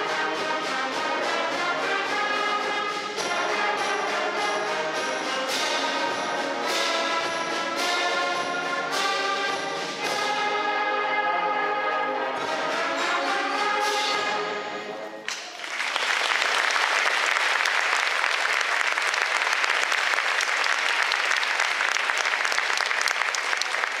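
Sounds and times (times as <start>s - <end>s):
concert band with brass: 0.0s - 24.0s
audience applauding: 15.3s - 24.0s.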